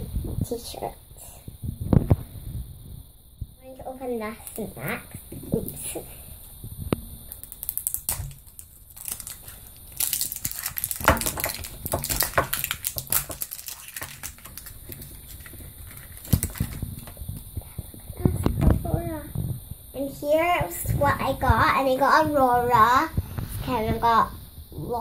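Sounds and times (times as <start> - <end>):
plastic capsule clicking: 7.3 - 17.4
wrapper rustling: 7.3 - 17.6.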